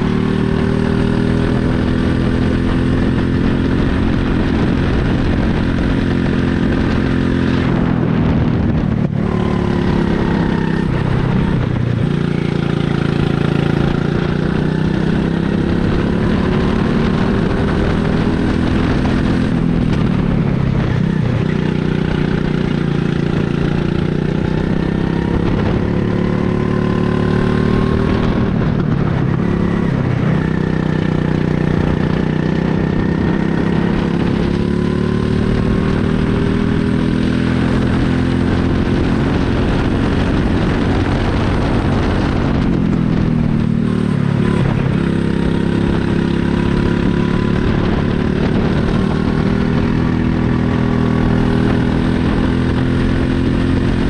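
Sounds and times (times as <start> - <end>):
go-kart engine: 0.0 - 54.0.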